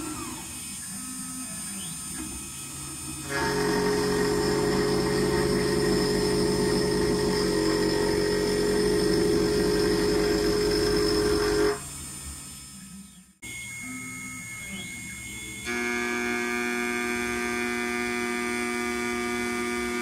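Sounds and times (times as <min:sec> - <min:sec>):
router cutting steel: 0:00.0 - 0:12.9, 0:13.7 - 0:20.0.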